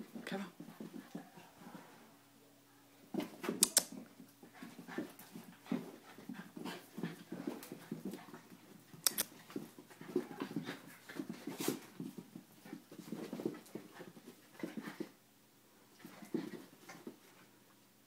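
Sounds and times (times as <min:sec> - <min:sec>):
sharp clicks: 0:03.6 - 0:03.9, 0:09.0 - 0:09.3
dog panting: 0:04.4 - 0:15.2.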